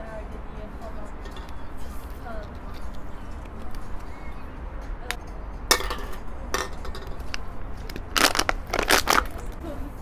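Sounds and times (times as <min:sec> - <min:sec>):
plastic bottle crinkling: 0:07.9 - 0:09.5.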